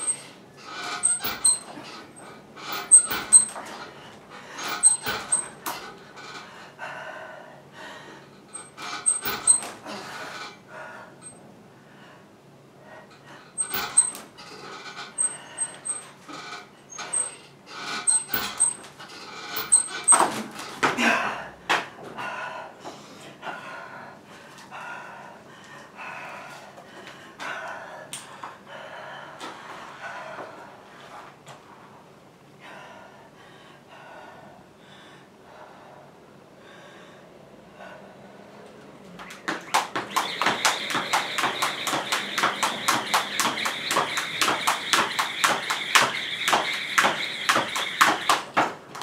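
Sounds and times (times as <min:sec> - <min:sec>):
person panting hard: 0:06.4 - 0:08.4.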